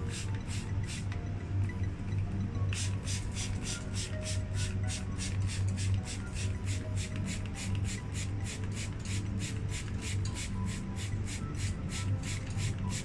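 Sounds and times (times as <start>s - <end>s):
spray bottle squirting hiss: 0.0s - 1.0s, 2.7s - 13.0s.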